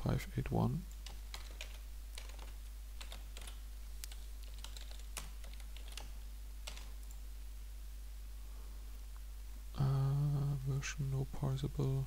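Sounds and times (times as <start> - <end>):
keyboard typing: 0.9 - 7.2.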